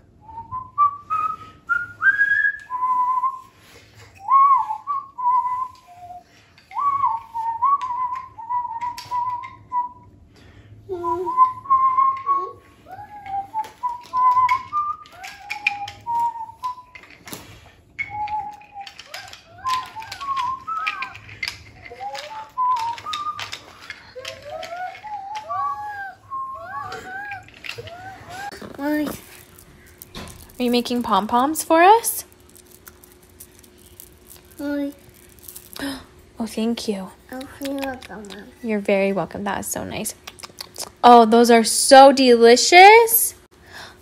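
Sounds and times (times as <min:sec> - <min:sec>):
person whistling a tune: 0:00.2 - 0:10.1, 0:10.9 - 0:17.0, 0:18.0 - 0:27.4
wooden toy train pieces clacking: 0:11.4 - 0:25.8, 0:26.7 - 0:36.0.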